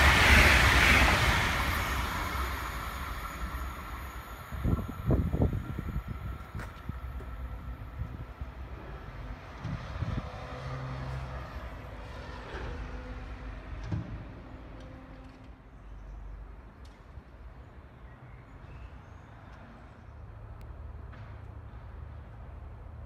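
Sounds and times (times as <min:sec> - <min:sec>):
distant train rumbling: 0:00.0 - 0:16.6
wind buffeting microphone: 0:04.5 - 0:10.6.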